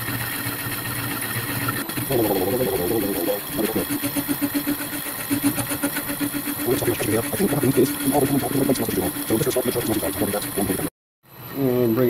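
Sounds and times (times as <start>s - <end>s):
lathe machine hum pulsing: 0.0s - 11.5s
wavering squawk of saw cut: 1.9s - 10.9s.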